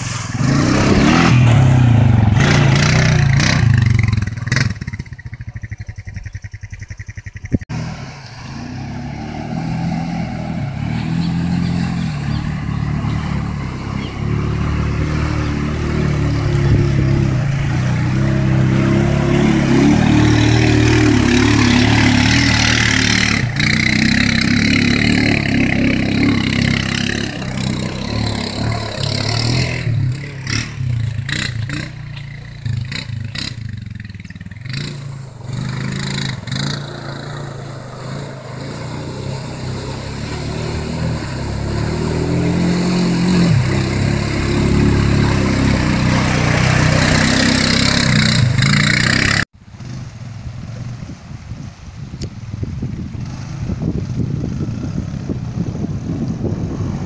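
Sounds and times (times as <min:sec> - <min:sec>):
atv engine revving: 0:00.0 - 0:51.1, 0:53.0 - 0:57.0
water splashing: 0:07.8 - 0:49.4.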